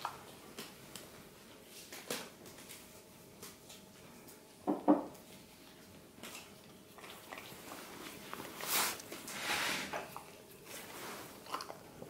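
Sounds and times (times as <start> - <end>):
knocks on a hard placemat: 4.7 - 5.1.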